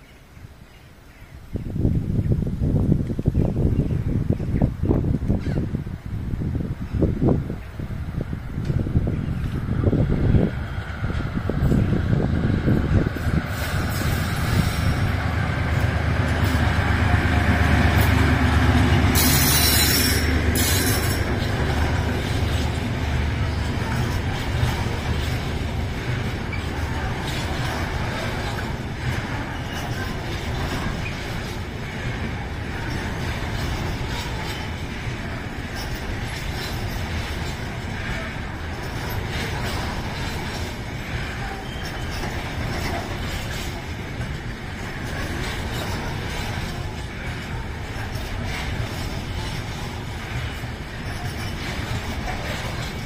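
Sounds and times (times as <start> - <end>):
train wheels rolling on rails: 0.0 - 53.0
diesel locomotive rumble: 1.9 - 53.0
wheels squealing and clicking: 17.8 - 53.0.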